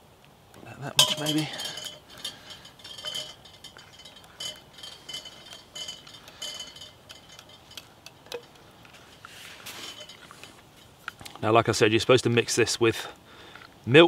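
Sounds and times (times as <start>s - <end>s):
spoon clinking in plastic cup: 1.0s - 10.4s.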